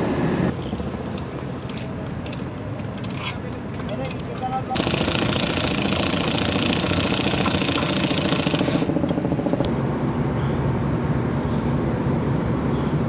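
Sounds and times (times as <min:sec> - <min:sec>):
impact wrench hammering bolt: 0:01.0 - 0:09.2.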